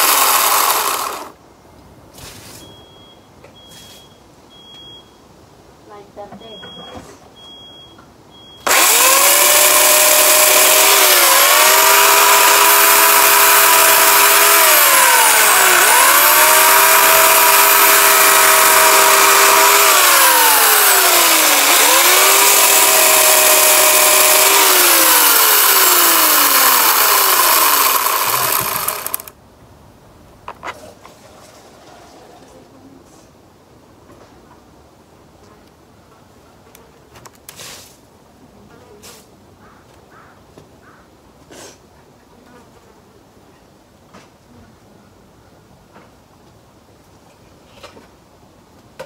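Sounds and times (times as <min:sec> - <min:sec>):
electric chainsaw cutting wood: 0:00.0 - 0:01.4, 0:08.6 - 0:29.4.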